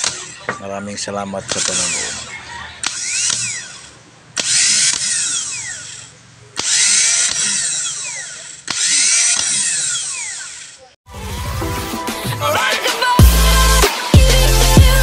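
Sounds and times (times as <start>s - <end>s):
starter motor whirring: 1.5s - 11.0s.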